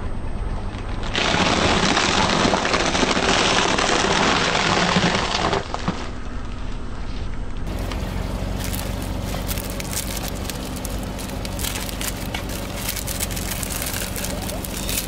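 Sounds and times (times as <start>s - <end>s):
low engine hum: 6.0s - 15.0s
rice cakes crunching under tyre: 7.7s - 15.0s.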